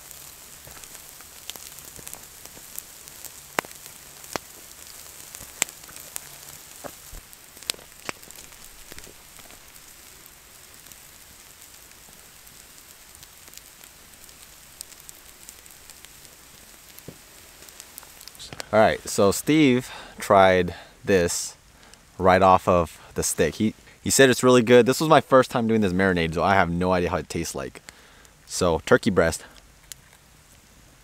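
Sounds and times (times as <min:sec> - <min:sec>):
meat sizzling with pops: 0:00.0 - 0:19.8.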